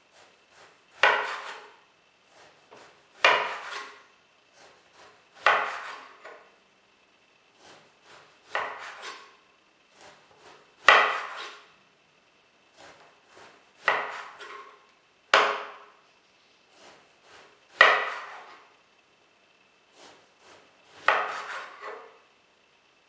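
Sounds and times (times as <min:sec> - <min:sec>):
knife sawing through eggplant: 0:00.0 - 0:06.4, 0:07.5 - 0:11.7, 0:12.7 - 0:14.8, 0:16.7 - 0:18.7, 0:19.9 - 0:22.2.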